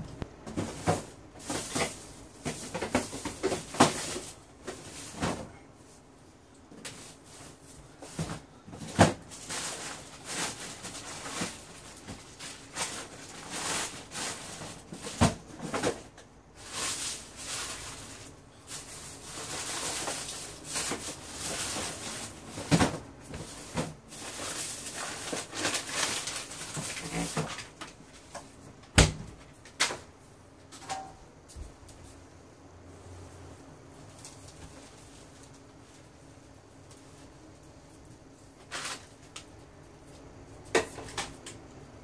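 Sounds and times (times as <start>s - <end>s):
laundry rustling: 0.0s - 30.1s.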